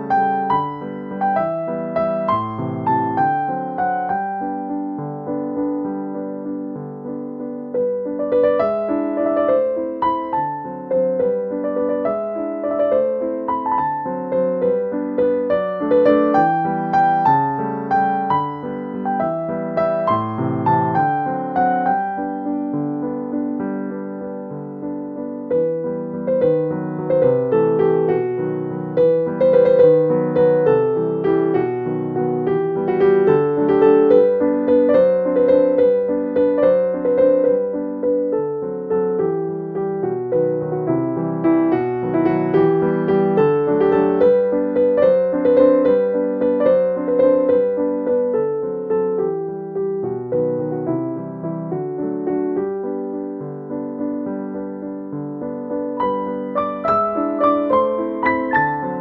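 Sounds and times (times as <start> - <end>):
piano music: 0.0 - 59.0.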